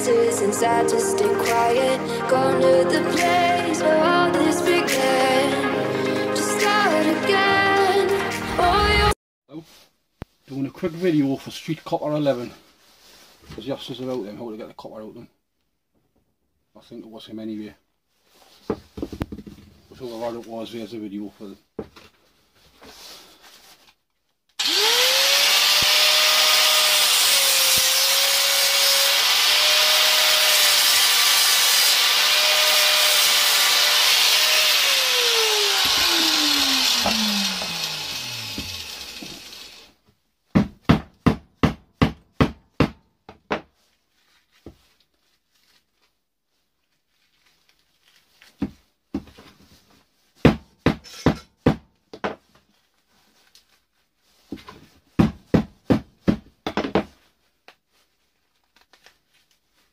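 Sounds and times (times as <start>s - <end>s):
angle grinder cutting metal: 24.6s - 39.9s.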